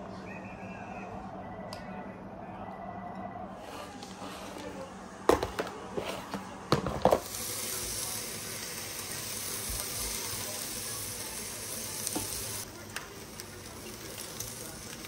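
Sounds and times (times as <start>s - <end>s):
meat sizzling in a frying pan: 7.2s - 15.0s.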